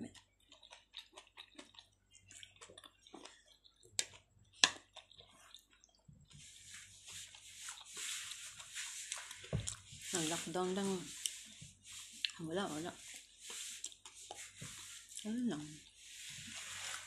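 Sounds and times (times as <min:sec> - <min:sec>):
wet mouth clicks of chewing: 0:00.0 - 0:06.0.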